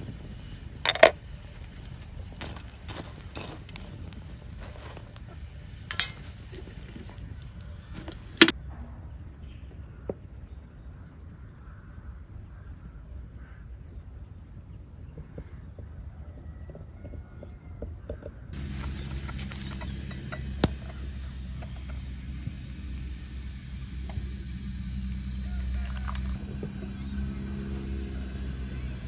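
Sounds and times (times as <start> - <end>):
kettle and china teapot clinking: 0.8 - 1.6, 2.4 - 4.2, 5.8 - 8.5, 18.6 - 29.0.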